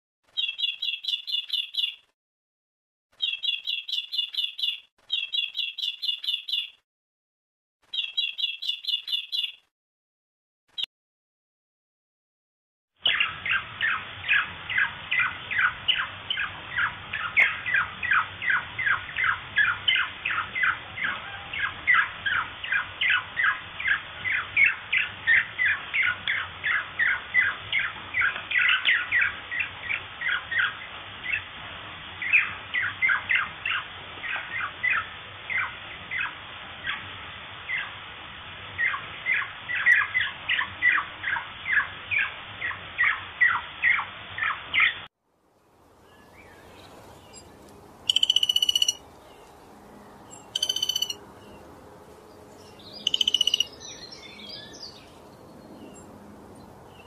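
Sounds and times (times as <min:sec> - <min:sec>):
budgerigar chirping: 0:48.1 - 0:49.0, 0:50.3 - 0:51.2, 0:53.0 - 0:54.1.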